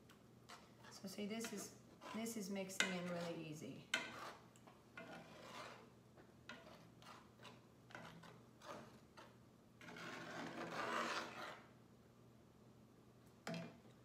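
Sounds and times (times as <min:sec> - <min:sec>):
spatula scraping a skillet: 0:00.4 - 0:05.9, 0:06.5 - 0:11.7.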